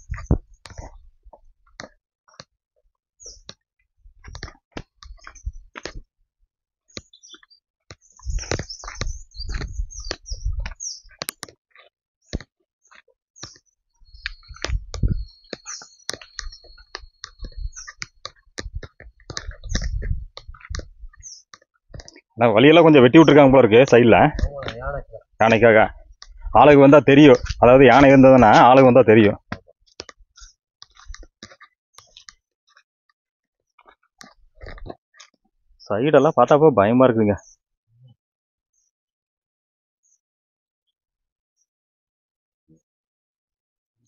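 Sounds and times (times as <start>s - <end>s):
footsteps on dirt path: 0.0s - 6.2s, 6.9s - 32.8s, 33.7s - 35.9s
bird chirps: 3.2s - 3.5s, 5.1s - 5.7s, 6.9s - 11.3s, 12.2s - 25.7s, 26.3s - 29.3s.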